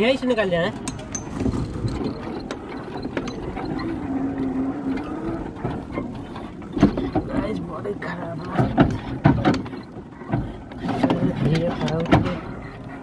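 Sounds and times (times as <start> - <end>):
cab rattling: 0.0 - 13.0
small clicks and knocks: 0.7 - 7.6.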